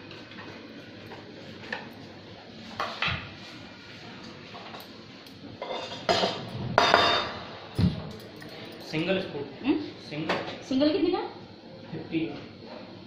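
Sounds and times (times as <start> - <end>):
dishes and utensils clattering: 5.6 - 9.0.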